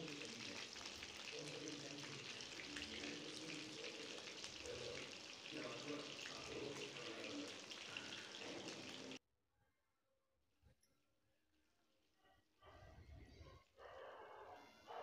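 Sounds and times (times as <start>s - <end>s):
fish sizzling in hot oil: 0.0s - 9.2s.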